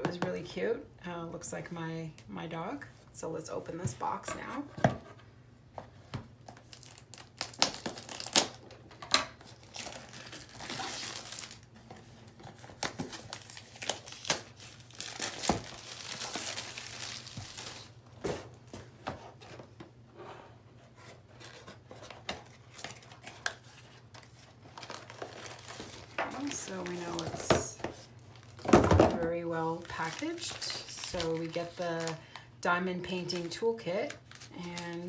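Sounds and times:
plastic wrap crinkling and tearing: 6.4s - 18.0s, 22.3s - 27.5s, 29.5s - 32.4s, 33.3s - 35.0s.

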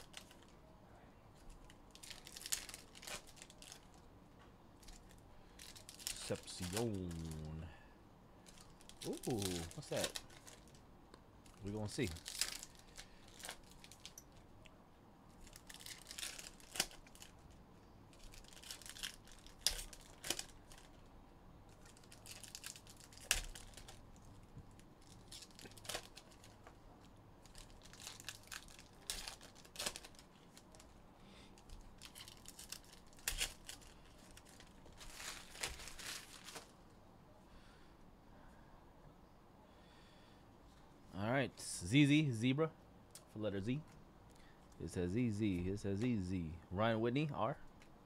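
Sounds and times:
foil wrappers tearing and crinkling: 0.0s - 0.5s, 1.5s - 4.0s, 4.8s - 7.6s, 8.4s - 10.8s, 11.5s - 14.2s, 15.4s - 21.0s, 21.7s - 26.7s, 27.4s - 30.9s, 31.6s - 36.8s.

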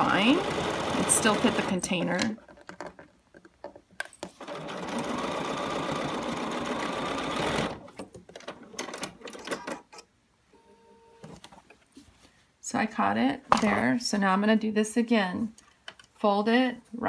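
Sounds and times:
sewing machine stitching: 0.0s - 2.3s, 4.4s - 9.9s.

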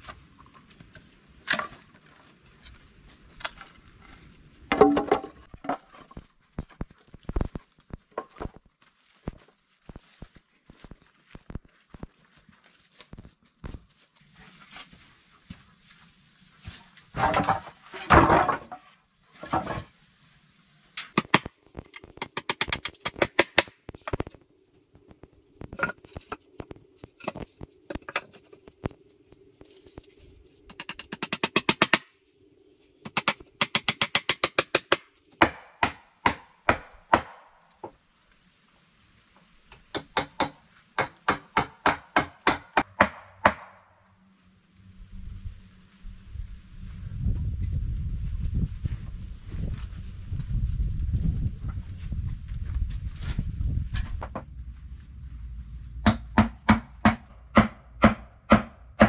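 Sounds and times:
sharp wooden knocks: 4.7s - 5.4s, 39.8s - 43.8s, 56.0s - 59.0s
logs clattering onto floor: 4.7s - 6.2s, 17.2s - 18.8s.

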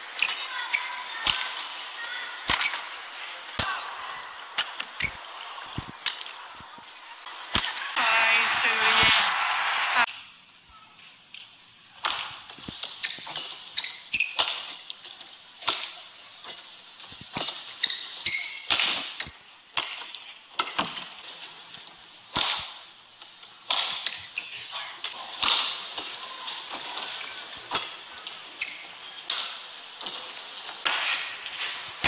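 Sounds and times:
shoes squeaking on court: 17.8s - 18.7s, 28.6s - 29.0s.

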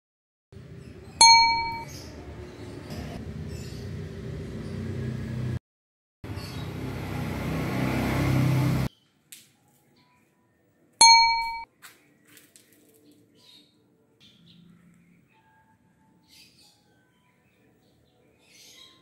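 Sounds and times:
bright ding chime: 1.2s - 1.9s, 11.0s - 11.7s.

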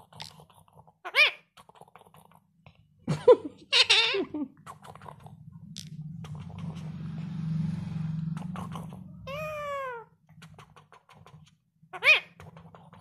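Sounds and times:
low steady hum: 3.0s - 10.0s
parrot meow-like call: 9.3s - 10.1s, 12.0s - 12.3s.

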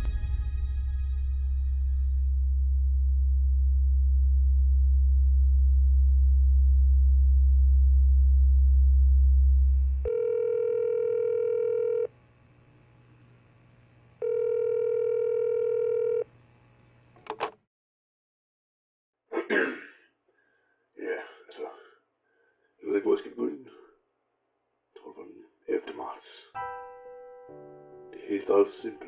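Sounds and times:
deep drone: 0.0s - 10.1s
phone ringback tone: 10.0s - 12.1s, 14.2s - 16.3s.

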